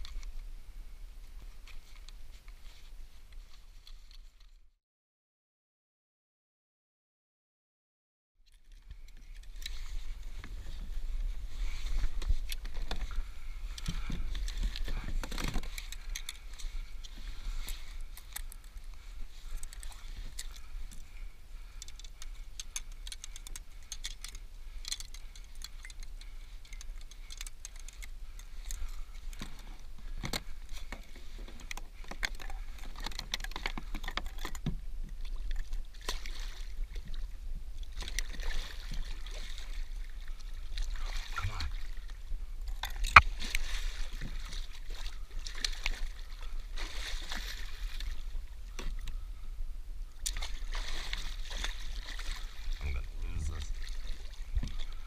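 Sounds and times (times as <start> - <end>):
water sloshing against hull: 8.5 - 55.0
fishing reel clicks and rattles: 21.8 - 28.8.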